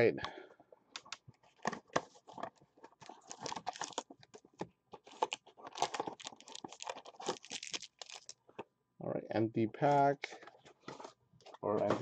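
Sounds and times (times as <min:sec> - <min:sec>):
cardboard and wrapping tearing: 0:03.0 - 0:04.1, 0:05.0 - 0:08.3.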